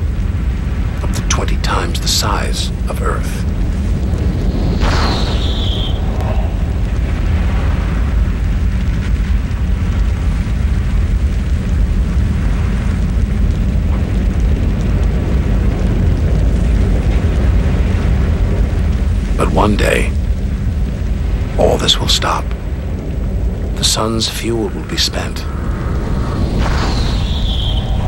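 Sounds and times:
deep steady rumble: 0:00.0 - 0:28.0
thin hiss: 0:04.0 - 0:06.9, 0:23.7 - 0:28.0.

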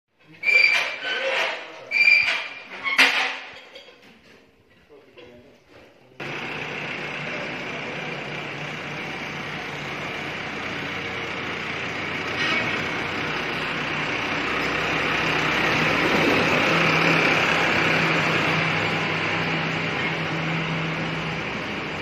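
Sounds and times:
tractor engine running: 0:06.2 - 0:22.0.

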